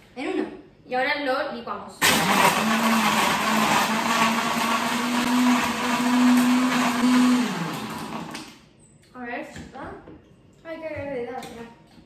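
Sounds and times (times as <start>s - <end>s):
blender crushing ice: 2.0s - 8.5s.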